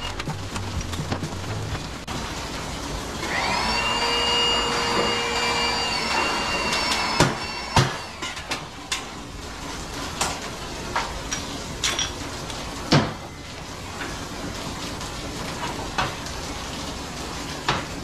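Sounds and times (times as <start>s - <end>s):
small motor whine: 3.2s - 8.2s.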